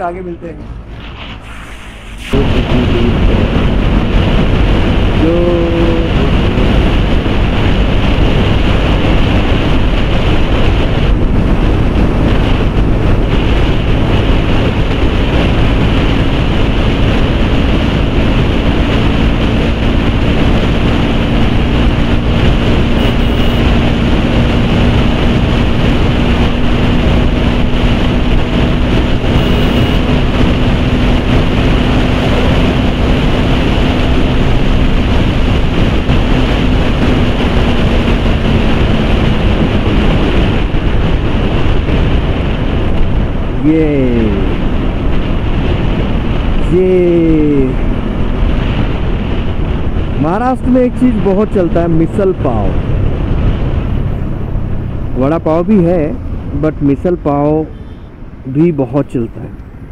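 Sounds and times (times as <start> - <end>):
wind rushing over microphone: 0.0 - 59.9
motorcycle engine running: 2.4 - 57.2
short tone: 23.0 - 23.7, 29.3 - 30.0.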